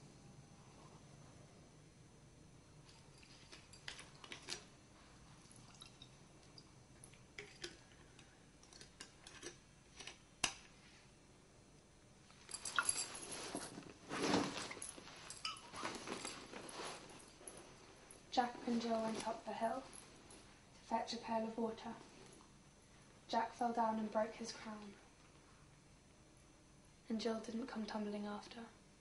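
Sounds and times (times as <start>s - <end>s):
fabric bag rustling: 12.4s - 20.5s.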